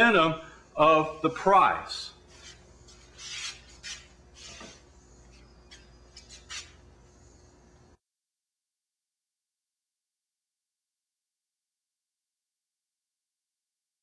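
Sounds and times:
faint background hum: 0:00.0 - 0:08.0.

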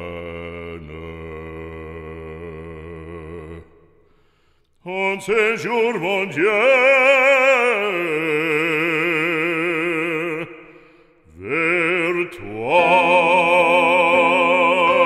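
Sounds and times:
operatic voice singing a hymn: 0:04.8 - 0:10.7, 0:11.3 - 0:15.0.

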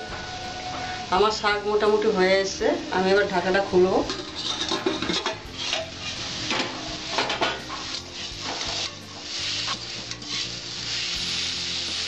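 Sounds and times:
pan sizzling: 0:00.0 - 0:12.0
metal spatula scraping pan: 0:04.0 - 0:09.0.

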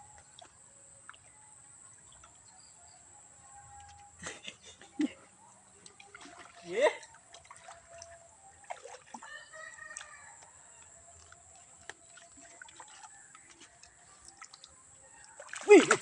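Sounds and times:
water trickling over rocks: 0:00.0 - 0:16.0.

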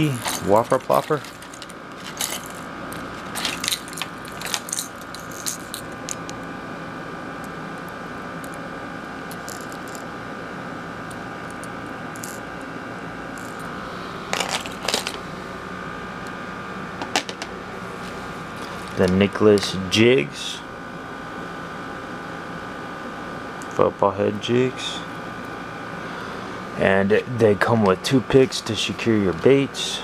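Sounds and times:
plastic packaging handled: 0:00.0 - 0:05.8
steady background hum: 0:00.0 - 0:30.0.

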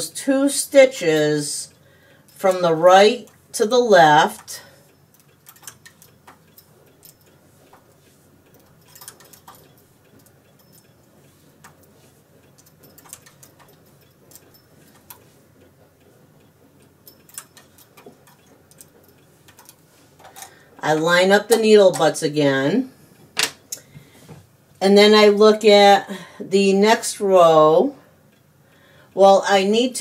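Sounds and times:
light metal clicks and ticks: 0:04.2 - 0:22.2.

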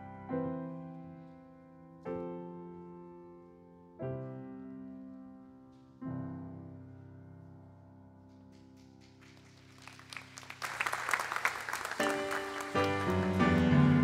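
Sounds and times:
audience applause: 0:09.0 - 0:14.0
piano chord ringing: 0:12.0 - 0:14.0.

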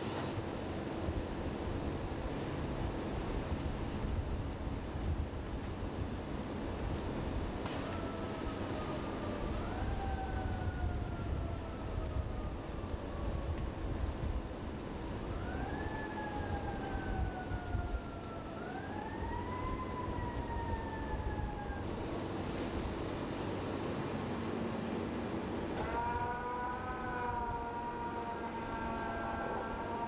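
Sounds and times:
emergency siren wailing: 0:06.9 - 0:30.0.

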